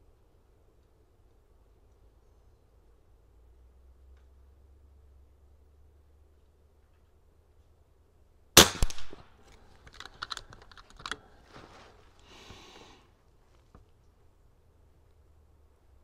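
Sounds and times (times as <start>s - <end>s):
air rifle shot crack: 8.6s - 9.4s
clicks and knocks of handling: 9.4s - 11.7s
soft hiss: 11.2s - 16.0s.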